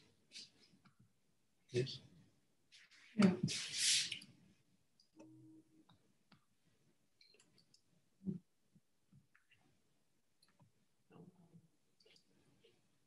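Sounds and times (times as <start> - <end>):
short hiss of noise: 3.5 - 4.3
computer clicks and handling noise: 7.2 - 7.9.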